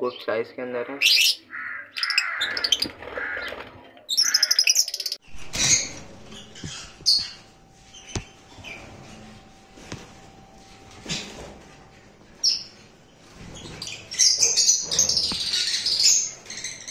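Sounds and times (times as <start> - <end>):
lovebirds chirping and screeching: 1.0 - 9.1, 12.4 - 16.9.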